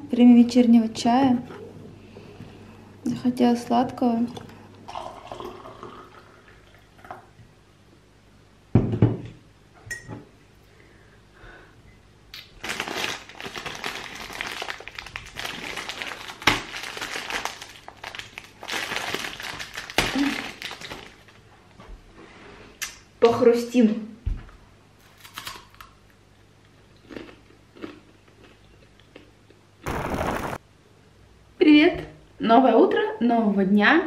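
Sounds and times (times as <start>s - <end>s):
tea pouring into ceramic mug: 4.9s - 6.9s
plastic wrapper crinkling: 12.4s - 21.4s.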